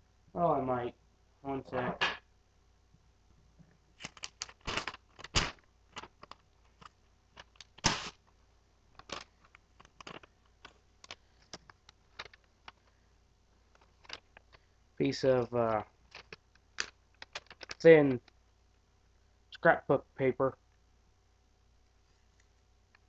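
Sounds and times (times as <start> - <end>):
faint steady hum: 0.0 - 23.0
rummaging clicks and knocks: 9.0 - 13.0, 13.7 - 14.6, 16.0 - 18.3.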